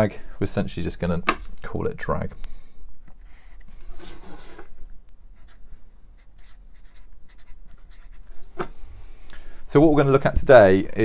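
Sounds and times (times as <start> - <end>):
marker pen writing: 5.3 - 5.6, 6.2 - 8.4.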